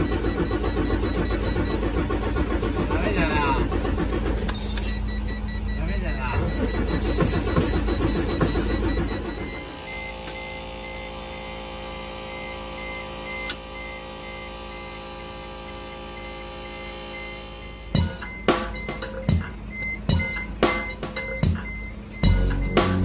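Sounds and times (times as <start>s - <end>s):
drum hits: 18.0s - 23.0s
held chords music: 18.0s - 23.0s.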